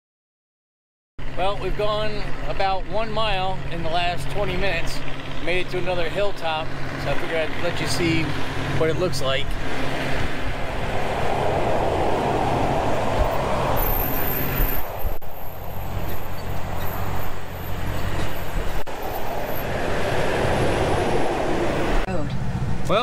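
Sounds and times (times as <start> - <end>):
low engine drone: 1.2 - 23.0
traffic rushing noise: 1.2 - 23.0.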